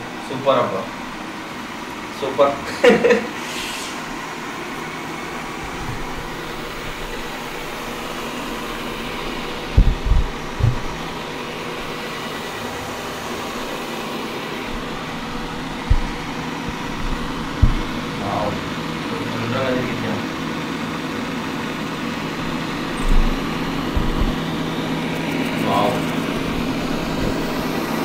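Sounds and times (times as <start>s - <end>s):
robot vacuum whirring: 5.2s - 19.3s, 21.7s - 28.0s
short low thumps: 5.6s - 12.0s, 14.6s - 19.0s, 22.2s - 24.8s.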